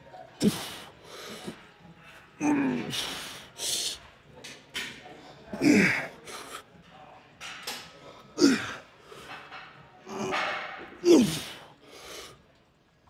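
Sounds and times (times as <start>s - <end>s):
man exhaling and grunting: 8.4s - 8.8s, 11.0s - 11.6s.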